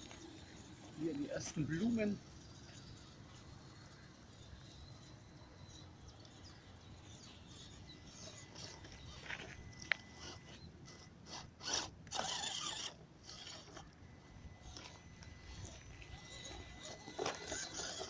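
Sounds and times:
electric motor and gearbox whirring: 0.0 - 18.0
twigs crackling under tyres: 8.0 - 11.1.

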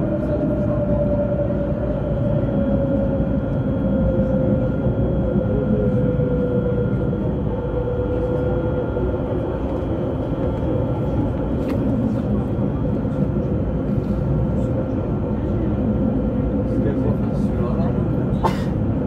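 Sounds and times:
tram motor whine: 0.0 - 19.0
tram wheels rumbling on rails: 0.0 - 19.0.

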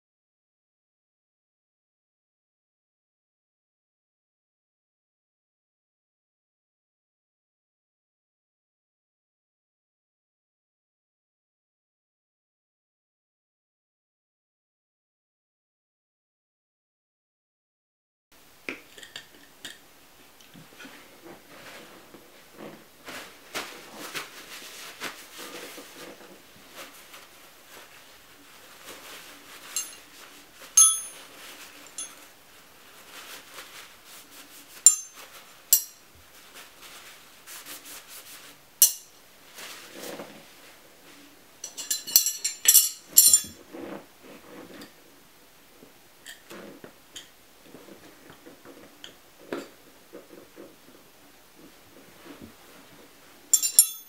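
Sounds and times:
handling noise: 20.5 - 54.0
steel tyre irons clinking: 29.8 - 30.2, 30.8 - 31.3, 34.8 - 36.0, 38.8 - 39.1, 41.6 - 43.6, 53.5 - 54.0.

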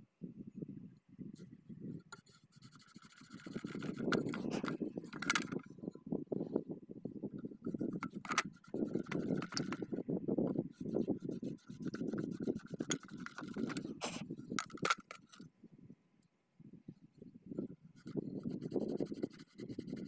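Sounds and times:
hands scraping metal: 2.0 - 5.7, 7.6 - 10.0, 10.6 - 15.4.

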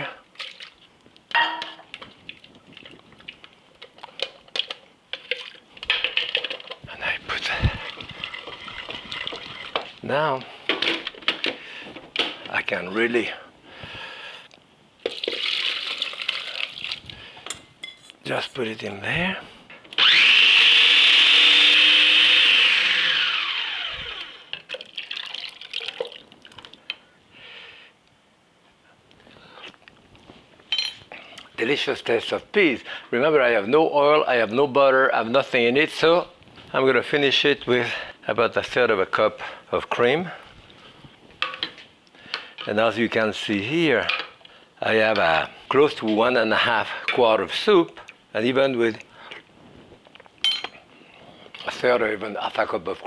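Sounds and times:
puree trickling into jug: 0.3 - 0.8, 1.9 - 10.0, 15.0 - 17.4, 24.6 - 27.0
kitchenware clinking: 1.3 - 1.9, 17.5 - 18.2, 30.7 - 31.1, 50.4 - 50.8
food processor motor running: 20.0 - 24.5.

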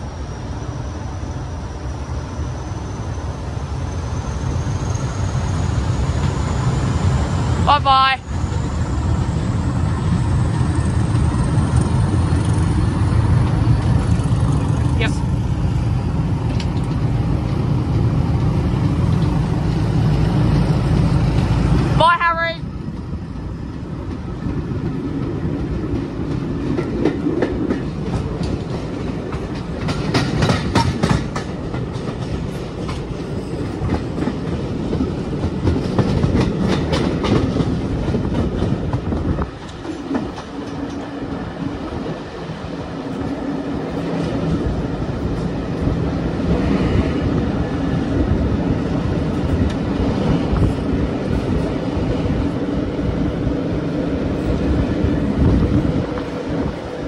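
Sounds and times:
train engine tone: 0.0 - 57.0
train wheels clicking over rail joints: 15.7 - 22.0, 22.9 - 52.6.

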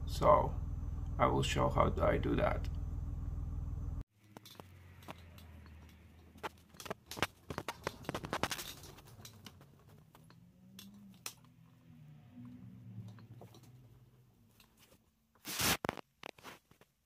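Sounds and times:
faint low wavering hum: 0.0 - 4.0
sharp clicks and scratches: 4.2 - 11.6, 14.5 - 16.9.

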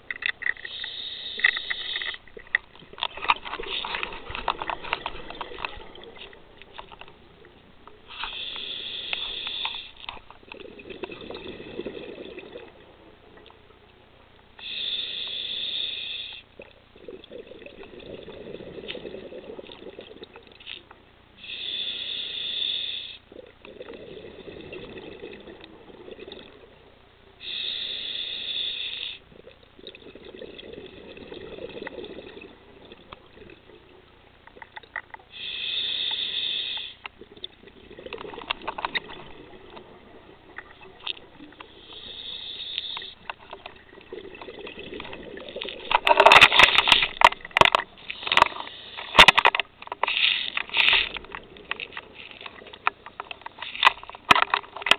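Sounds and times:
regulator hiss on inhale: 0.6 - 2.2, 8.1 - 10.2, 14.6 - 16.6, 21.4 - 23.4, 27.4 - 29.3, 35.3 - 37.1, 41.6 - 43.5, 48.0 - 51.2
burbling exhaled bubbles: 1.4 - 8.5, 10.2 - 13.5, 16.6 - 20.6, 23.3 - 27.0, 29.3 - 34.7, 37.2 - 42.3, 43.2 - 48.5.

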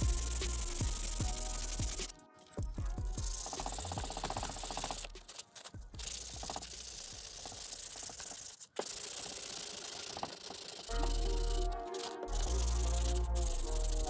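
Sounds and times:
background music: 0.0 - 7.3, 10.9 - 14.0
sandpaper rubbing on wood: 0.0 - 14.0.

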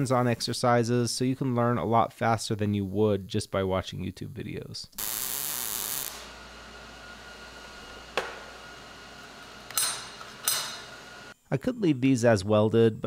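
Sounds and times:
welding arc: 5.0 - 11.4.

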